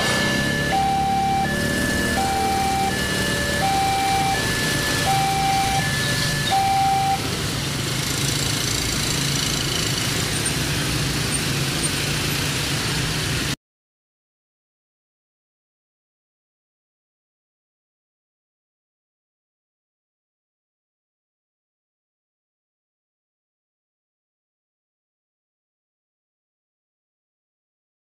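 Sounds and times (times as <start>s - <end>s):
level crossing two-tone alarm: 0.0s - 7.4s
motorcycle engines pulling away: 0.0s - 13.6s.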